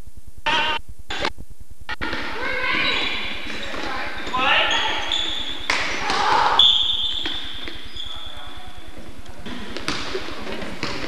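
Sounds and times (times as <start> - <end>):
basketball bouncing on hardwood floor: 9.5 - 11.0.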